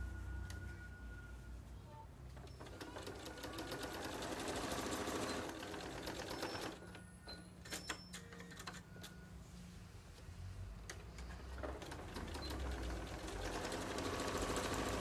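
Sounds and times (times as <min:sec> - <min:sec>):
sewing machine stitching: 0:02.4 - 0:06.8, 0:11.5 - 0:15.0.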